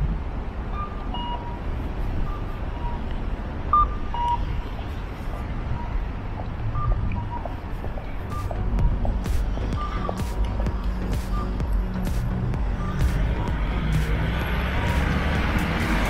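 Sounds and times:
city traffic rumble: 0.0 - 16.0
two-note electronic beeps: 0.7 - 1.6, 6.7 - 7.6, 8.3 - 9.0, 9.6 - 11.8, 12.6 - 14.0.

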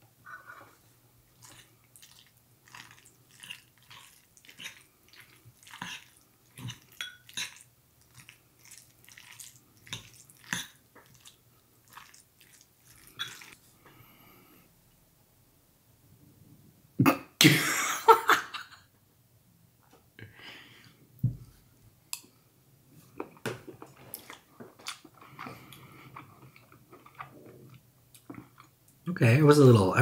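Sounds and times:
close chewing: 1.3 - 13.6, 23.2 - 28.7.

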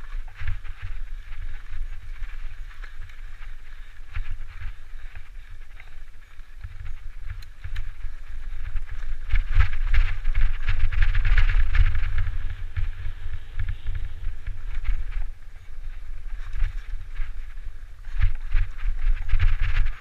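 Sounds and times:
bike tyres rolling on dirt: 0.0 - 20.0
small clicks and rattles: 0.0 - 20.0
wind buffeting microphone: 0.0 - 20.0.

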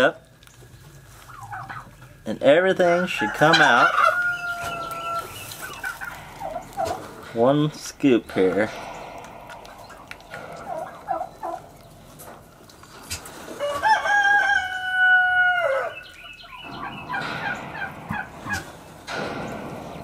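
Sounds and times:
rooster crowing: 3.0 - 5.3, 13.6 - 16.0.

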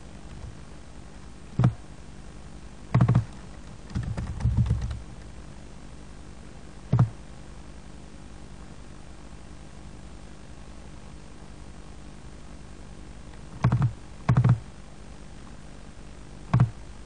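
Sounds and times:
steady low hiss: 0.0 - 17.0
keyboard and mouse clicks: 1.6 - 1.8, 2.9 - 5.0, 6.9 - 7.1, 13.4 - 14.6, 16.5 - 16.8.

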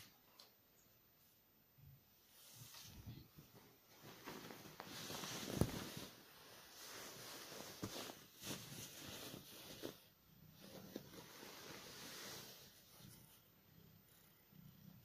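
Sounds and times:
rustling and handling noises: 2.3 - 13.6.

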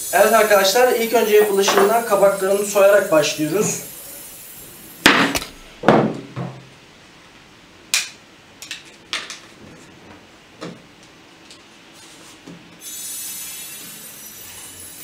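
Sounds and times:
utensils knocking on cutting board: 1.6 - 2.0.

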